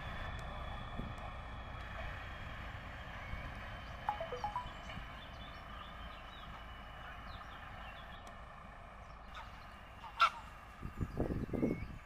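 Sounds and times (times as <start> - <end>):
small birds chirping: 3.7 - 8.4.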